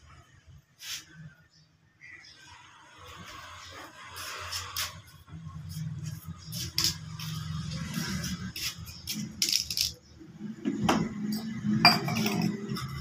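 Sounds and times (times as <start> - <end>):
kitchenware clinking on hard floor: 11.3 - 13.0.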